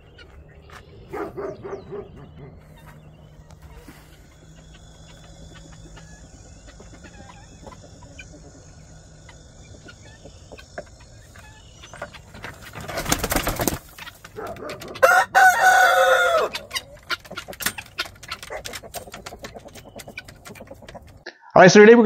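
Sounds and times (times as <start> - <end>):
faint bird chirps: 0.0 - 14.6
wings flapping: 2.6 - 21.2
loud fowl call: 14.9 - 16.8.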